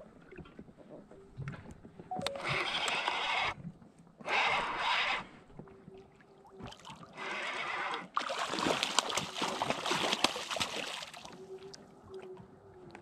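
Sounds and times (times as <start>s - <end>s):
fish splashing in water: 6.6s - 11.8s.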